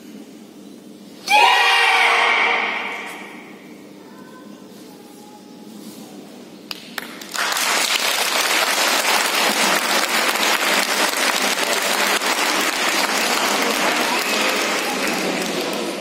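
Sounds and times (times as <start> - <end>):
audience applauding: 6.7 - 16.0.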